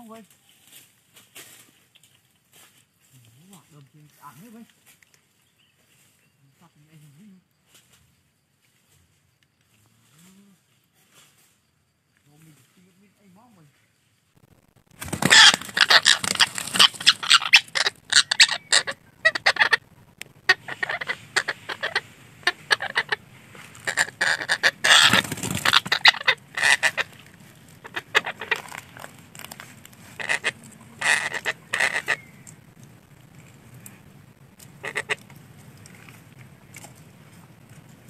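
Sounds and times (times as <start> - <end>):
parakeets squawking: 15.1 - 29.2, 30.0 - 32.7, 34.6 - 35.4.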